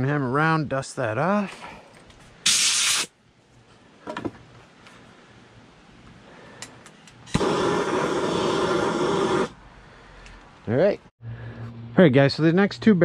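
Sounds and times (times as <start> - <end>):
torch flame hissing: 2.4 - 3.1, 7.3 - 9.6
torch ignition click: 7.1 - 9.5.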